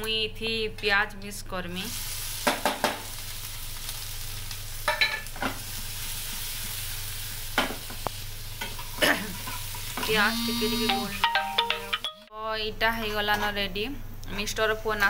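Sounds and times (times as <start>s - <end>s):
onion sizzling in a frying pan: 1.8s - 11.2s.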